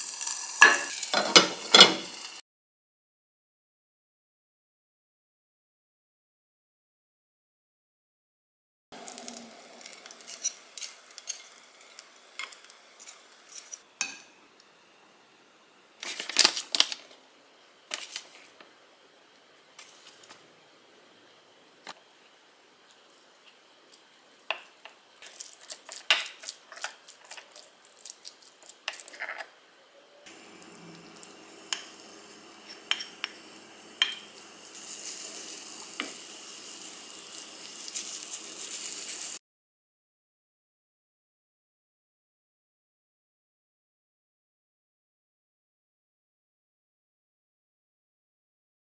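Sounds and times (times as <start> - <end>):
batter sizzling in a pan: 0.0 - 2.4, 9.0 - 39.4
utensils clinking and scraping: 9.2 - 13.8.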